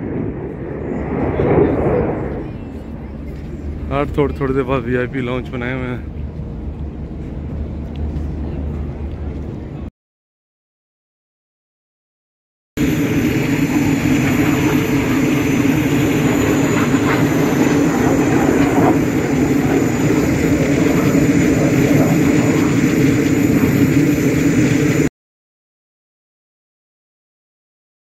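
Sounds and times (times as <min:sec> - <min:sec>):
jet engine high whine: 0:00.0 - 0:09.9, 0:12.8 - 0:25.1
jet engine rumble: 0:00.0 - 0:09.9, 0:12.8 - 0:25.1.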